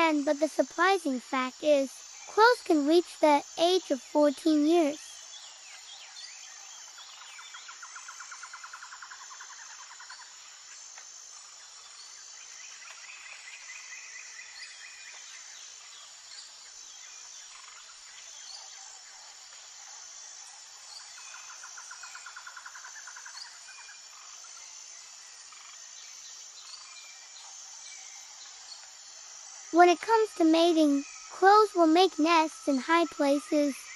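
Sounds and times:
insects chirping: 0:00.0 - 0:33.9
rapid insect trills: 0:00.0 - 0:33.9.

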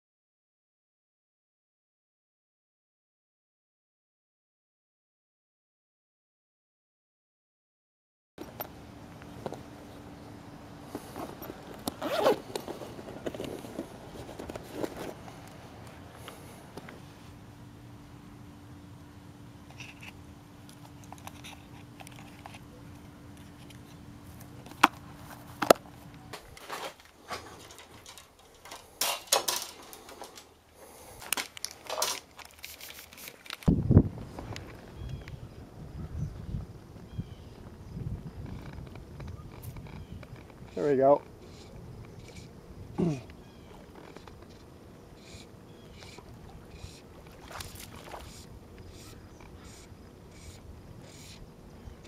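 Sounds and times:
fishing gear rustling and clicking: 0:10.8 - 0:17.0, 0:19.7 - 0:33.7, 0:43.3 - 0:49.6
handling rustles: 0:10.9 - 0:17.0, 0:31.2 - 0:34.9
zipper rasping: 0:11.0 - 0:15.2.

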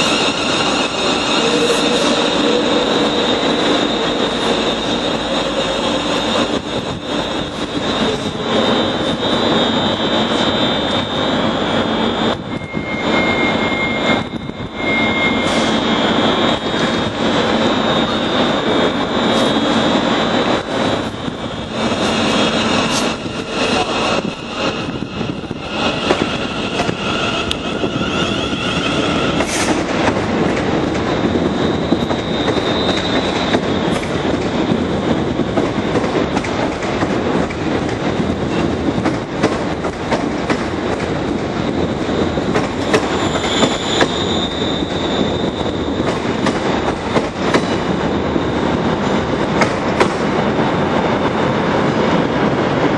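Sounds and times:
high-pitched wheel squeal: 0:00.0 - 0:06.7, 0:12.2 - 0:16.9, 0:22.0 - 0:29.8, 0:42.9 - 0:46.0
train wheels rumbling and clattering: 0:00.0 - 0:52.9.

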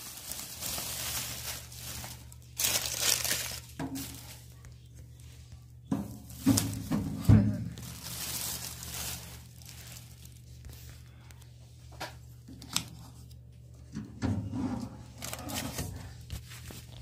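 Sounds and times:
plastic wrapping rustling: 0:00.0 - 0:11.6, 0:15.0 - 0:17.0.

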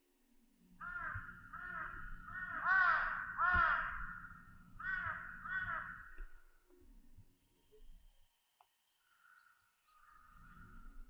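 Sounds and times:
crow cawing: 0:00.8 - 0:06.3, 0:09.1 - 0:10.7.

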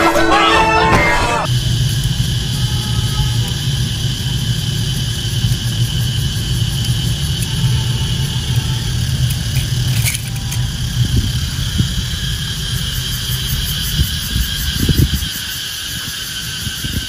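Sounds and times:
high-pitched whine: 0:00.0 - 0:17.0
motor humming: 0:01.5 - 0:15.1.

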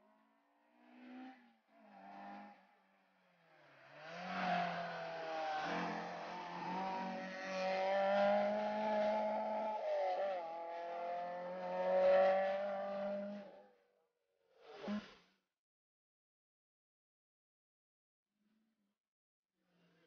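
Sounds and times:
rally car engine at high revs: 0:00.7 - 0:13.7.

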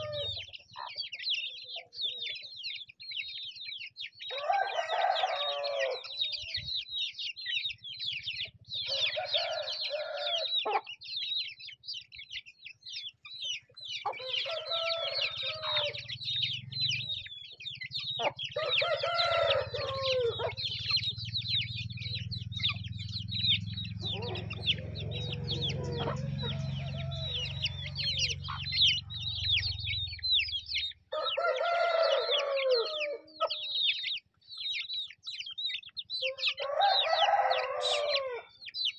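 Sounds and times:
rooster crowing: 0:00.0 - 0:00.4, 0:04.3 - 0:06.4, 0:08.9 - 0:10.6, 0:14.1 - 0:16.1, 0:18.6 - 0:20.7, 0:24.0 - 0:29.9, 0:31.1 - 0:33.7, 0:36.2 - 0:38.6
chicks peeping: 0:00.0 - 0:38.9.

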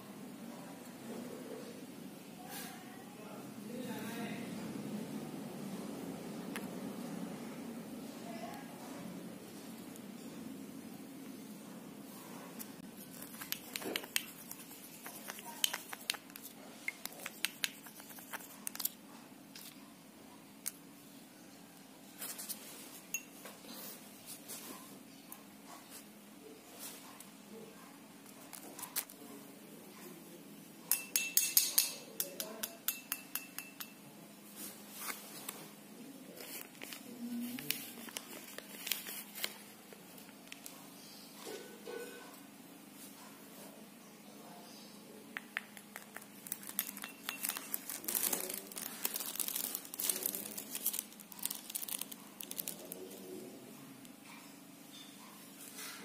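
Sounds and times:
plastic spoon clinking glass bowl: 0:23.1 - 0:23.4, 0:30.9 - 0:34.0, 0:45.4 - 0:48.2
crinkling handling noise: 0:34.5 - 0:40.9, 0:45.8 - 0:53.5.

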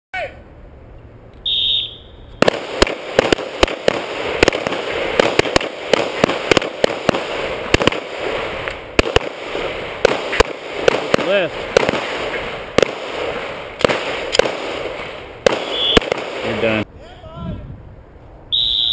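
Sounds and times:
pistol shots: 0:02.4 - 0:16.8.

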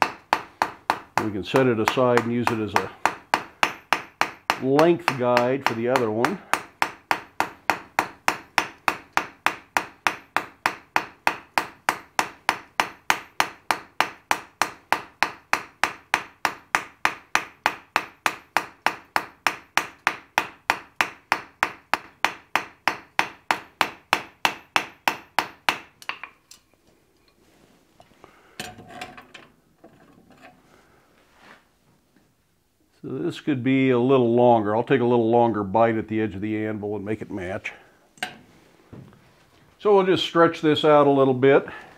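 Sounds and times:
hammer clanking on anvil: 0:00.0 - 0:26.4
hammer striking hot steel on anvil: 0:00.0 - 0:26.4.

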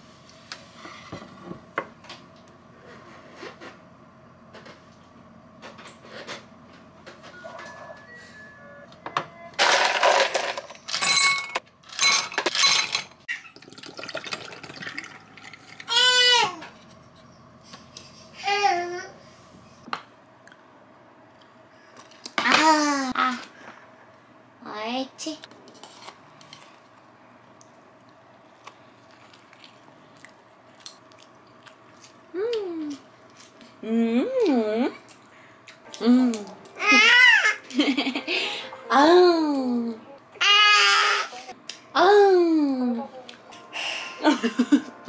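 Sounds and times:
faint steady hum: 0:00.0 - 0:45.0
juice pouring into glass: 0:13.3 - 0:15.9.

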